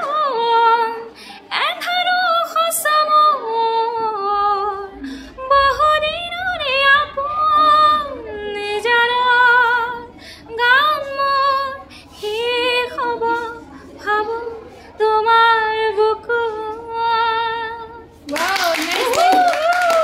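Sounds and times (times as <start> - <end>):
woman singing unaccompanied: 0.0 - 20.0
singer breathing: 1.1 - 1.5, 5.0 - 5.4, 10.1 - 10.5, 11.8 - 12.2.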